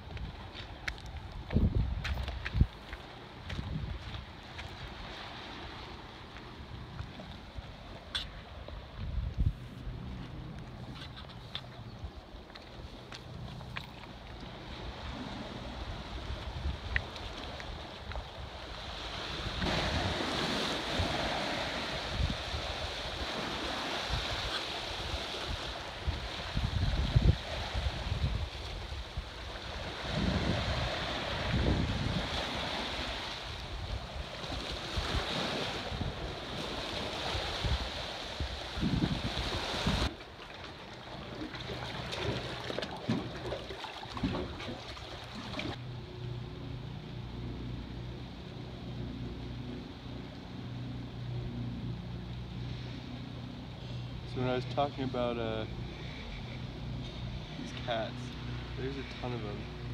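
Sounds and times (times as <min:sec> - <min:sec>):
wind gusting on microphone: 0:00.0 - 0:06.0, 0:06.7 - 0:12.3, 0:14.8 - 0:40.2
surf washing against rocky shore: 0:14.5 - 0:45.8.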